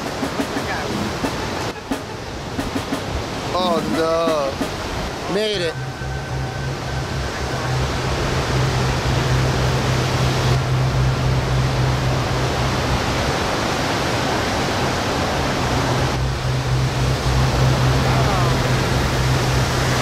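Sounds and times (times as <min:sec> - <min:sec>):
heavy surf rushing: 0:00.0 - 0:20.0
steady low hum: 0:04.6 - 0:20.0.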